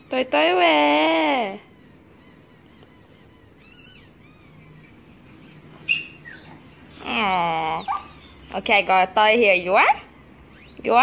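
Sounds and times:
rubber squeaky toy squeaking: 0:00.0 - 0:00.5, 0:01.4 - 0:07.0, 0:09.6 - 0:11.0.

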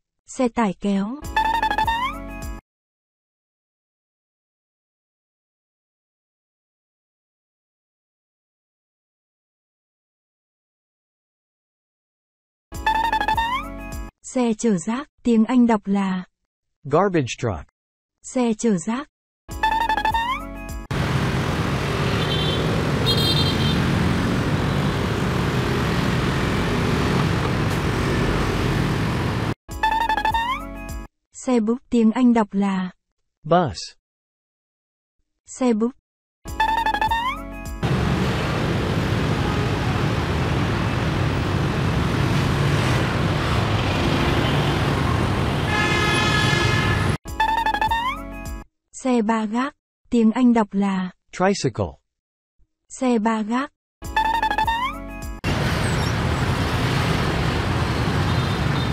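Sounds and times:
bus driving past: 0:20.9 - 0:29.6, 0:37.8 - 0:47.2, 0:55.5 - 0:58.9
motorbike and scooter traffic: 0:20.9 - 0:29.6, 0:37.8 - 0:47.2, 0:55.4 - 0:58.9
road noise: 0:20.9 - 0:29.6, 0:37.8 - 0:47.2, 0:55.4 - 0:58.9.

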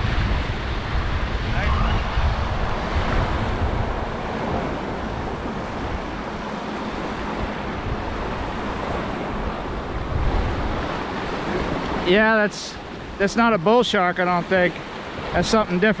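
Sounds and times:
wind on microphone: 0:00.0 - 0:12.1
small waves breaking on beach: 0:00.0 - 0:16.0.

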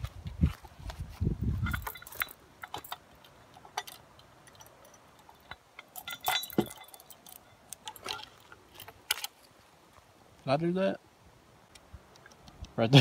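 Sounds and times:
metal chain clinking: 0:01.5 - 0:09.3.

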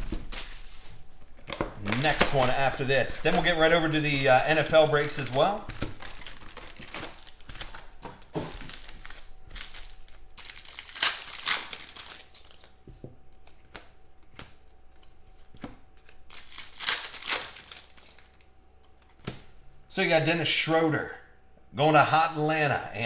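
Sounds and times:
foil wrappers crinkling and tearing: 0:00.0 - 0:12.8, 0:16.0 - 0:18.5.

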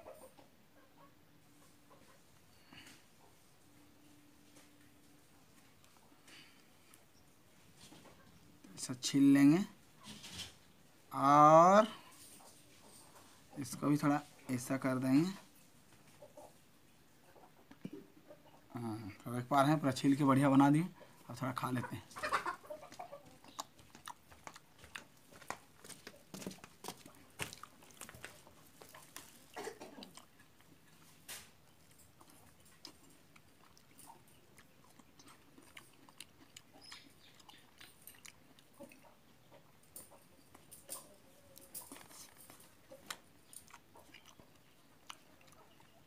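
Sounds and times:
person chewing soft fruit: 0:22.9 - 0:46.0.

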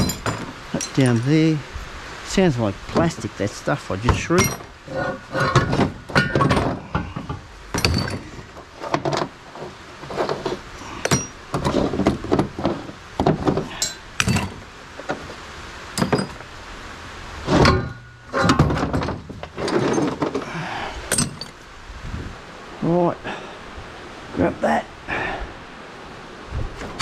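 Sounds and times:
scrap metal knocking and clinking: 0:00.0 - 0:01.5, 0:04.0 - 0:15.2, 0:15.9 - 0:16.5, 0:17.4 - 0:21.6.

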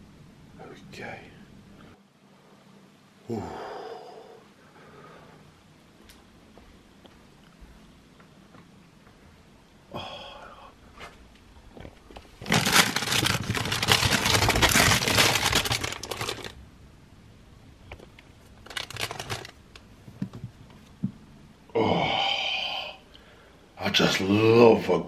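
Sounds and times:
plastic wrappers crinkling: 0:11.8 - 0:16.6, 0:17.9 - 0:19.9.

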